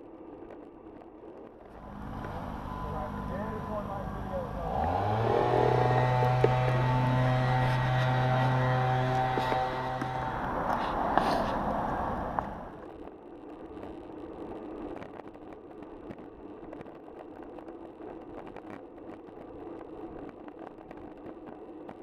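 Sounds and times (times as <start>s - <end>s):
bicycle tyres rolling on tarmac: 0.0s - 22.0s
motor vehicle passing: 1.7s - 12.8s.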